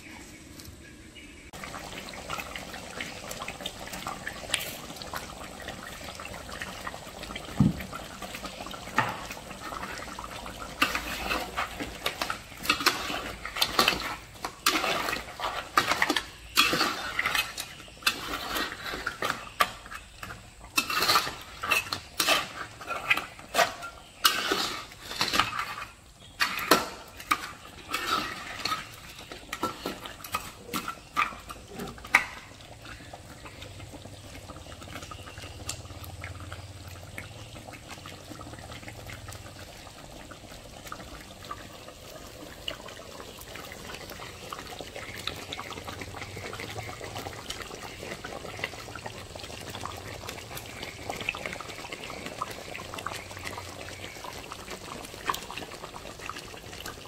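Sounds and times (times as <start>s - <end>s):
cooking sauce hiss: 0.0s - 57.0s
spatula scraping wok and shells: 8.4s - 33.6s.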